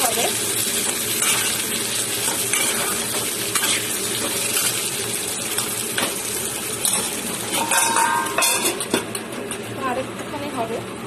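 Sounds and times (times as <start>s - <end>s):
potatoes sizzling in hot oil: 0.0s - 9.7s
metal spatula scraping pan: 2.4s - 3.9s
ringing metallic clank: 7.6s - 8.8s.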